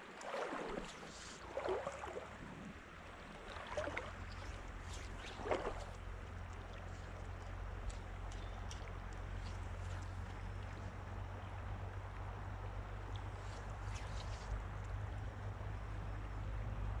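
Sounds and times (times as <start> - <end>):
water splashing: 0.0 - 10.7
low steady rumble: 0.0 - 17.0.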